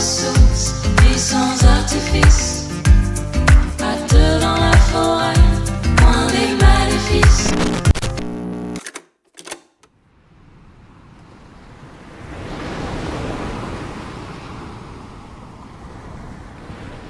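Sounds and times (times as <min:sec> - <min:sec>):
music: 0:00.0 - 0:08.4
surf washing: 0:10.7 - 0:17.0.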